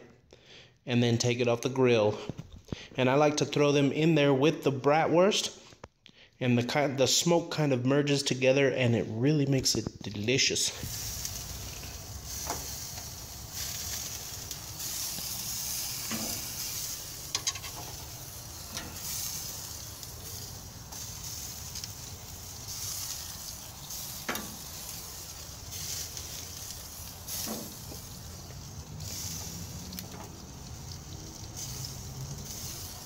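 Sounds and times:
peppers sizzling on a grill: 10.7s - 33.0s.

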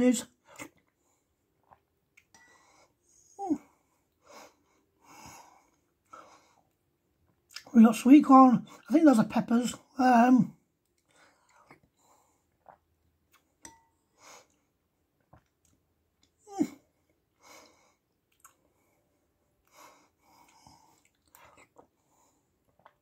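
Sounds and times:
breathing: 2.4s - 3.0s, 3.8s - 6.7s, 11.0s - 12.5s, 17.4s - 18.0s, 18.7s - 21.0s, 22.0s - 22.6s
chewing: 18.3s - 18.6s, 20.4s - 22.0s.

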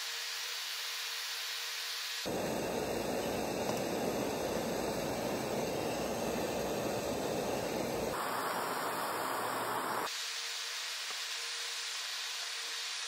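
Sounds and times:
gas torch flame hissing: 2.1s - 10.2s.

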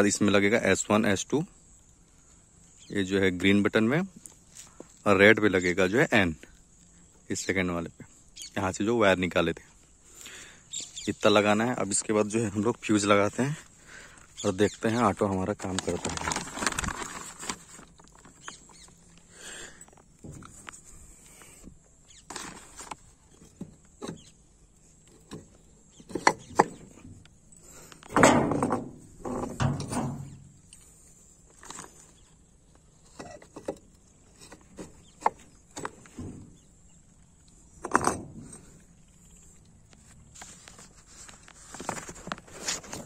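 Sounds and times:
rough rustling: 9.9s - 21.6s, 22.2s - 24.0s, 38.2s - 43.0s.

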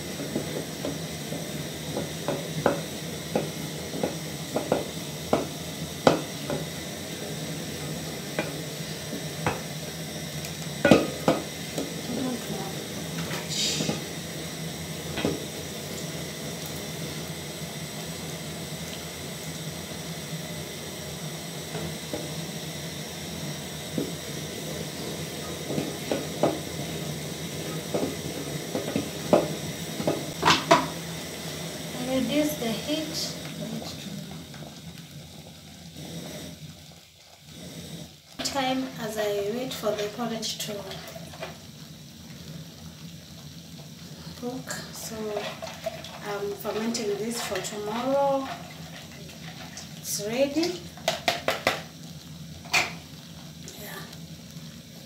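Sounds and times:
steady low hum: 0.0s - 43.4s
porridge bubbling: 0.0s - 55.0s
spoon knocking on pot: 10.8s - 11.5s
wooden spoon scraping a pot: 45.2s - 49.9s.

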